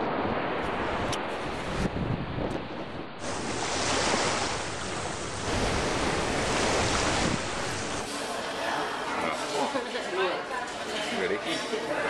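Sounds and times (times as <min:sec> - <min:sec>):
wind buffeting microphone: 0:00.0 - 0:08.0
ocean surf washing on beach: 0:00.0 - 0:08.2.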